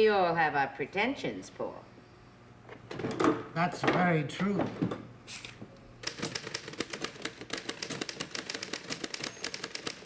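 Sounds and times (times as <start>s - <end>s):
typewriter key strikes: 6.0s - 10.0s.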